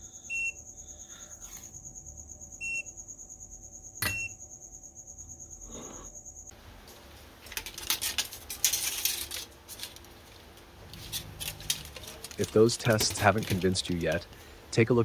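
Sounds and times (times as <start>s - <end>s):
short beep: 4.0s - 4.4s
copper strip crinkling: 7.4s - 14.6s.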